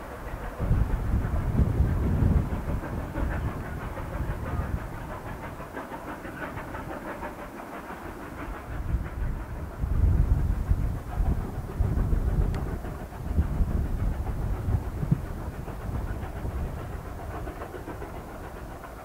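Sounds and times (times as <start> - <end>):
distant steam train rumble: 0.0 - 19.0.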